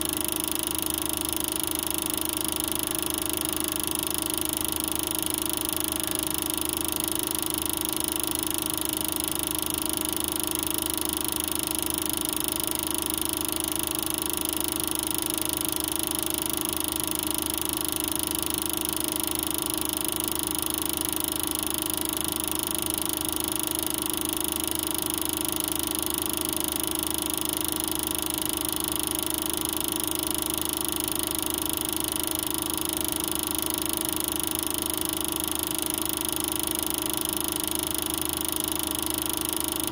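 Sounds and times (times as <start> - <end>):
film projector whirring: 0.0 - 39.9.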